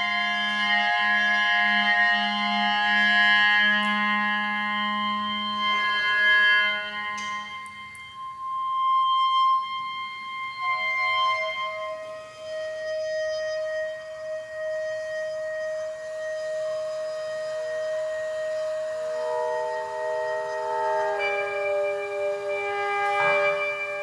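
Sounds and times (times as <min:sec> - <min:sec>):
experimental music of held ringing tones: 0:00.0 - 0:24.0.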